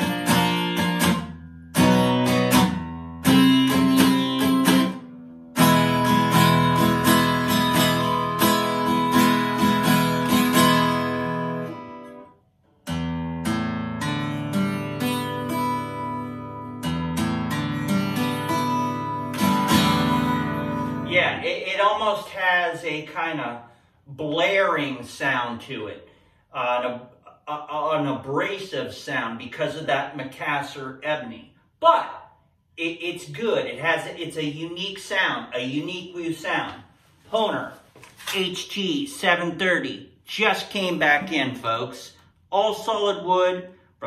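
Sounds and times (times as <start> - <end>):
acoustic guitar strummed chords: 0.0 - 21.2.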